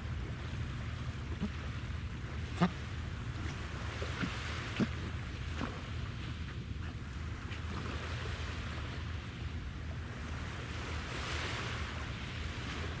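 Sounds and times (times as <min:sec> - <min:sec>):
sea water washing: 0:00.0 - 0:13.0
wind: 0:00.0 - 0:13.0.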